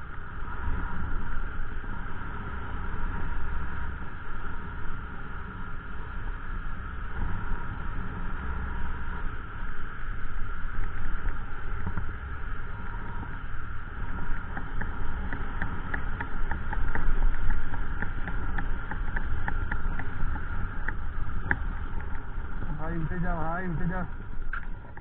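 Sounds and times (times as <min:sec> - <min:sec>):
motorcycle engine rumbling: 0:07.4 - 0:25.0.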